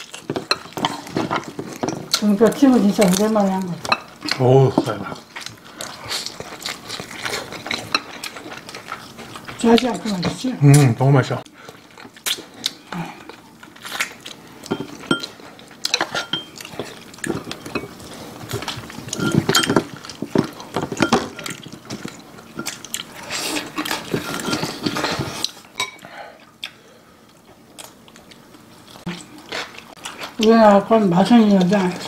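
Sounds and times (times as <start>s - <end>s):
wet eating sounds: 0.0s - 32.0s
chopsticks clinking on ceramic bowls: 14.7s - 15.3s, 15.9s - 16.7s, 19.1s - 21.6s.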